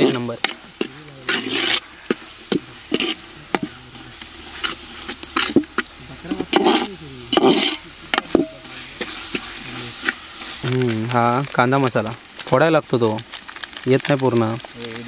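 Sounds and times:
ladle scraping and knocking pot: 0.0 - 12.0
light sizzle: 0.0 - 15.0.

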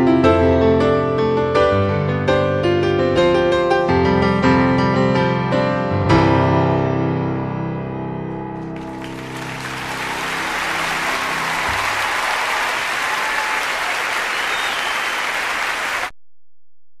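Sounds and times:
gentle piano music: 0.0 - 12.0
crowd applauding: 8.7 - 16.2.

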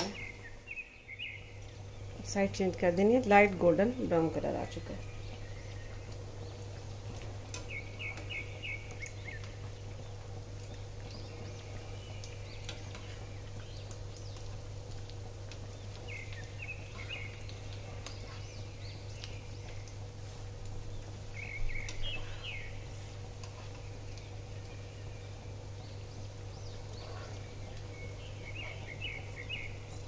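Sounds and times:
birds chirping: 0.0 - 30.0
patties sizzling in oil: 0.0 - 30.0.

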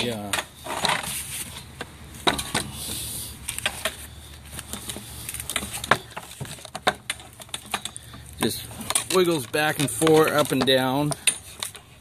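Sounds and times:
linkage clicking and rattling: 3.4 - 12.0.

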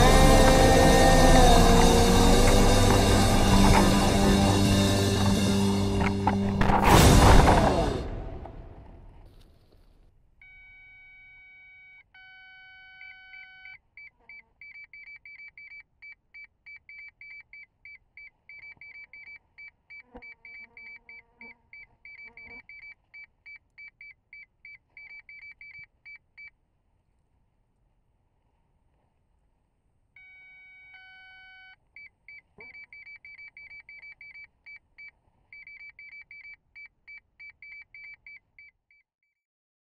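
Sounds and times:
long electronic tones: 0.0 - 6.7.

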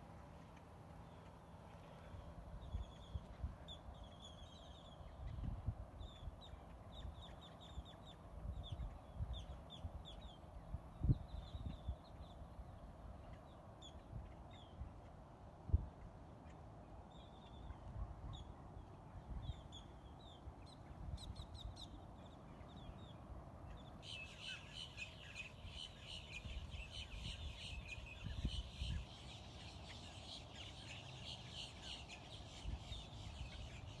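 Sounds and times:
wind rumble on microphone: 1.9 - 16.2, 17.5 - 23.1, 23.7 - 31.2
birds calling: 19.5 - 34.0.

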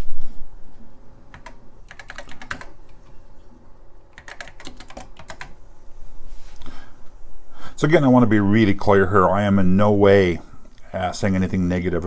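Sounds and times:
keyboard typing: 1.3 - 3.1, 4.1 - 5.6.

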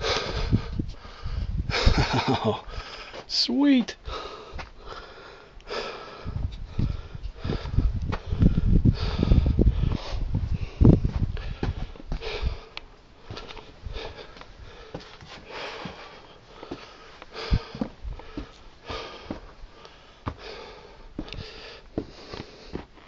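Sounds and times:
man breathing heavily: 0.0 - 23.0
shoes and hands scuffing rock: 22.0 - 23.0.

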